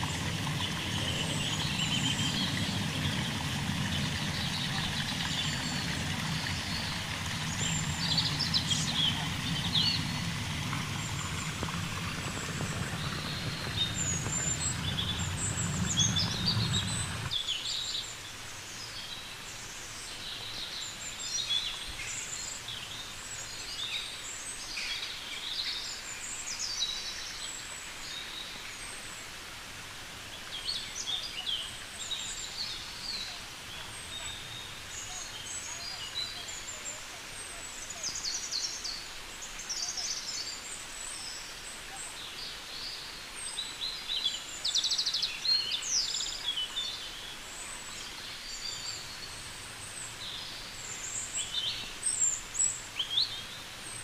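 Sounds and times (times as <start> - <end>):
birds chirping: 0.0 - 17.4
running water: 0.0 - 54.0.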